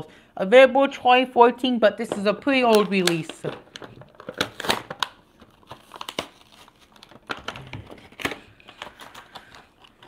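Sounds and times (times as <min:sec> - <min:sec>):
plastic blister packaging crinkling: 0:02.5 - 0:10.0.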